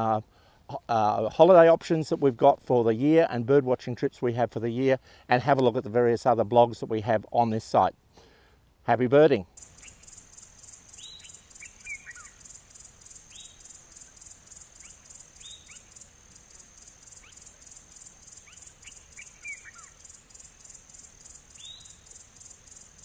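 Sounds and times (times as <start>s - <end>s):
bird chirps: 9.6s - 23.0s
pulsing insect chorus: 9.6s - 23.0s
bird downward-sliding calls: 10.9s - 20.5s.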